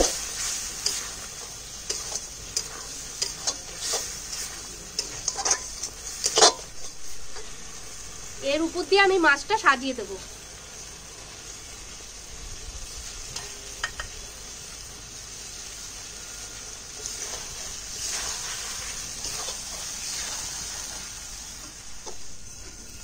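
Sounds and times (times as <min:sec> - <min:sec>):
food sizzling in a pan: 0:00.0 - 0:23.0
utensil clicking against pan: 0:01.8 - 0:06.6.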